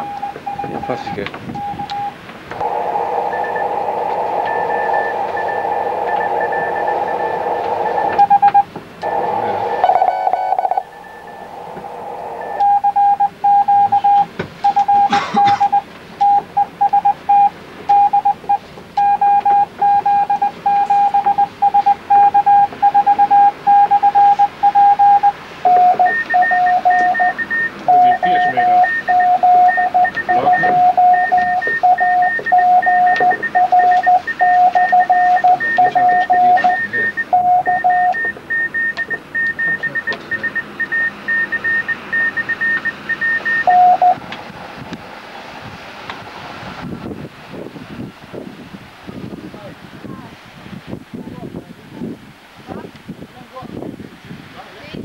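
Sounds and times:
morse code tone: 0.0 - 44.2
radio receiver hiss: 2.6 - 12.8.

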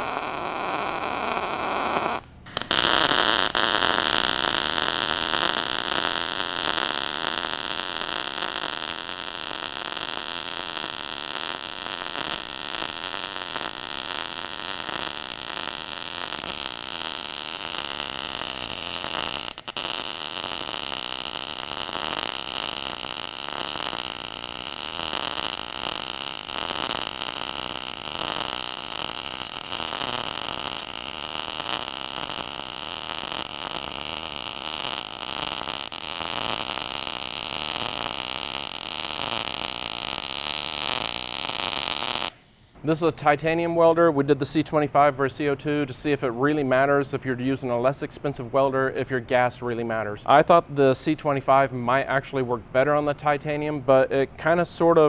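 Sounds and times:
welding arc crackling and sizzling: 0.0 - 42.4.

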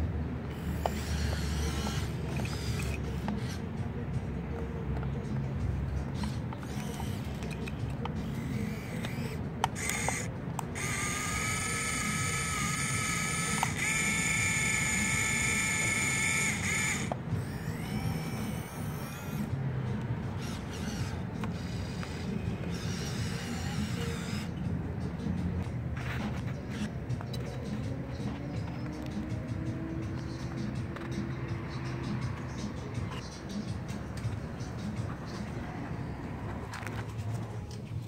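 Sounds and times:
small electric motors whining: 0.5 - 3.8, 6.2 - 24.6, 26.0 - 33.3.

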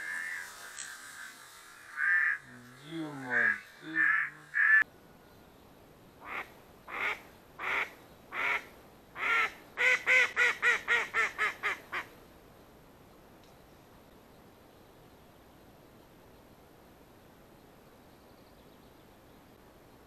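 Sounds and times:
hen mallard quacking: 1.9 - 2.5, 3.3 - 4.8.

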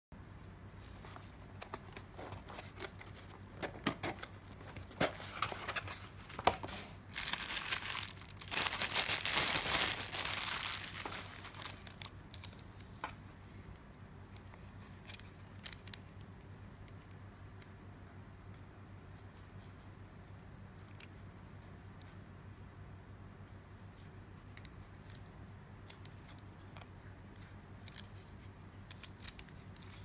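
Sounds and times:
plastic bag crinkling: 7.0 - 12.5.

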